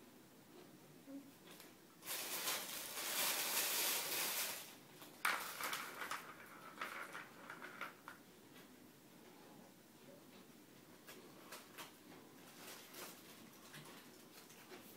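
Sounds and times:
ball rolling around plastic track: 2.3s - 8.2s.

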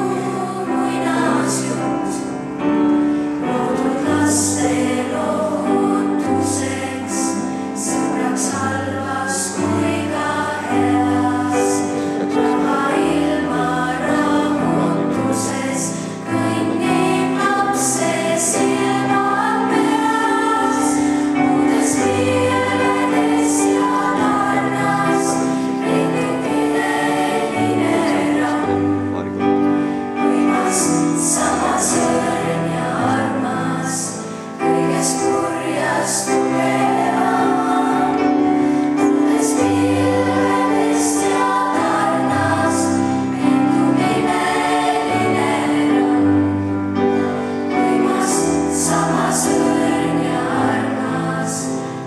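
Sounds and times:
children's choir singing: 0.0s - 52.0s
piano accompaniment: 0.0s - 52.0s.

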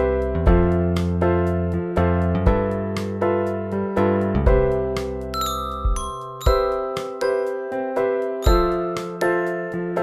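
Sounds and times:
bell-like struck notes music: 5.4s - 7.8s, 8.4s - 9.8s.

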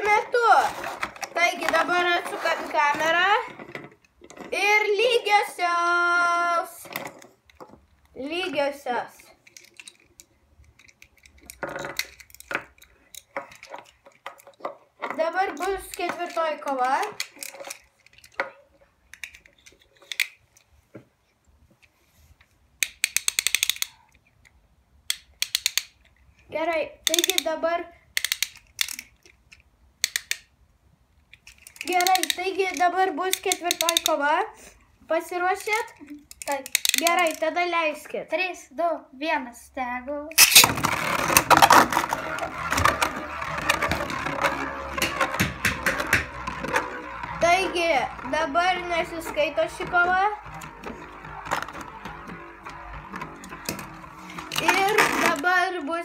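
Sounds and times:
plastic spinning tops clicking: 0.0s - 5.3s, 9.2s - 20.7s, 22.8s - 26.1s, 27.0s - 30.6s, 31.3s - 37.7s, 40.3s - 56.0s
ratcheting launcher clicks: 22.8s - 24.0s, 35.6s - 37.5s, 40.3s - 55.4s.

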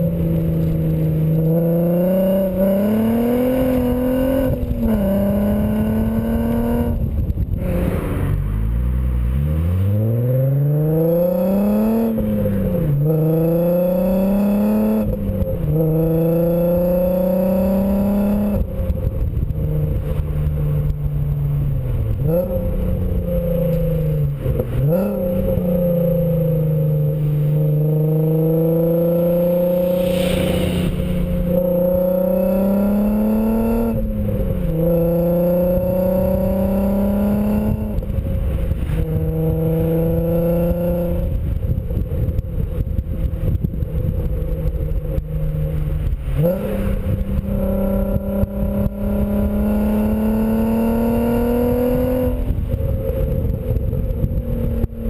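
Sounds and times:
road and wind noise: 0.0s - 55.0s
car exhaust note: 29.5s - 35.1s.

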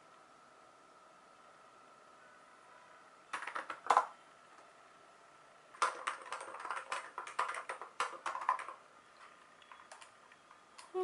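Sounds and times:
mechanical keyboard typing: 3.3s - 4.1s, 5.8s - 8.8s, 9.6s - 10.2s.

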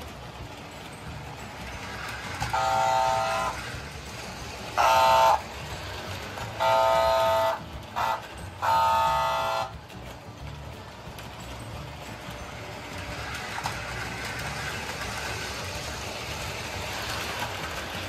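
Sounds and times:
toy train rumbling on track: 0.0s - 18.0s
toy train horn blasts: 2.4s - 3.7s, 4.7s - 5.6s, 6.5s - 9.8s.

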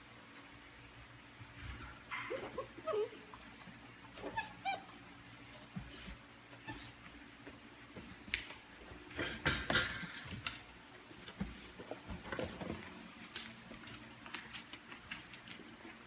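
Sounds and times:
puppy whining: 2.1s - 7.0s.

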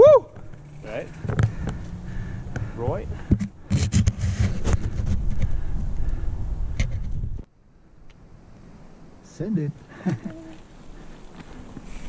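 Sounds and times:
wind buffeting microphone: 1.2s - 7.5s
mountain bike rattling on trail: 9.9s - 12.0s.

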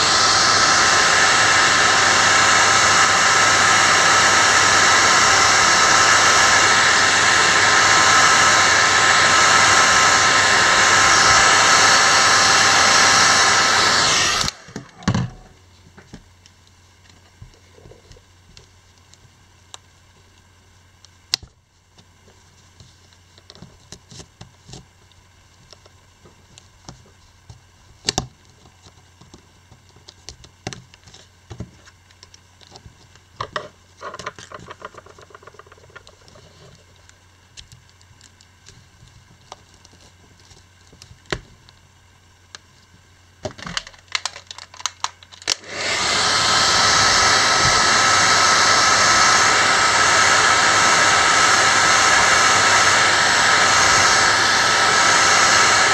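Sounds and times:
hair dryer blowing: 0.0s - 15.5s, 45.4s - 55.9s.

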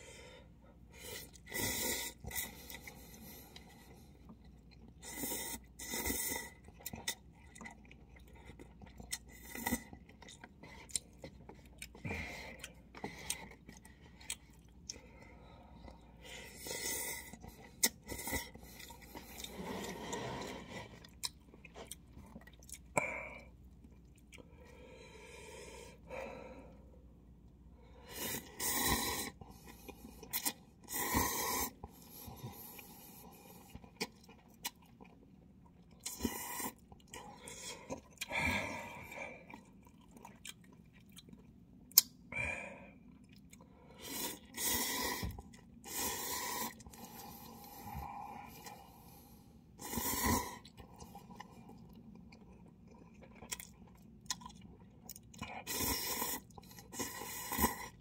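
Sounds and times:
person chewing noodles: 0.0s - 58.0s
slurping: 15.8s - 22.0s, 28.1s - 35.1s, 43.9s - 49.1s, 49.8s - 51.9s, 55.6s - 58.0s.

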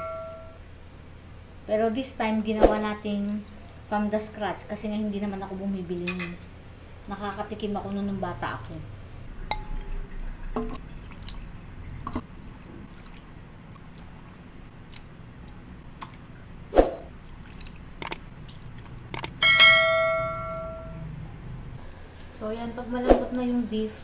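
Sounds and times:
bell-like ding: 0.0s - 0.6s, 19.4s - 21.0s
soup dripping and splashing: 9.5s - 10.0s, 10.8s - 19.4s
ladle clicking against bowl: 18.0s - 18.2s, 19.1s - 19.4s.

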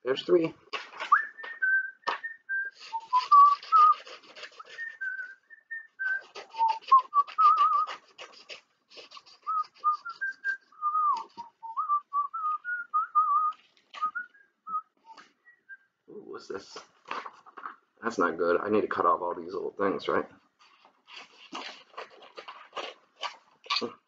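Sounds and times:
scissors snipping paper: 0.7s - 1.6s, 2.8s - 5.2s, 6.0s - 11.5s, 20.6s - 23.9s
man whistling a tune: 1.0s - 8.0s, 9.4s - 15.8s.

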